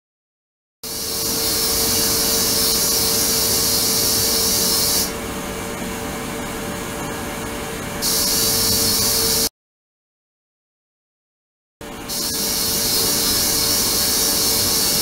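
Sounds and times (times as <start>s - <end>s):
ultrasonic tank hiss: 0.9s - 5.1s, 8.0s - 9.5s, 12.1s - 15.0s.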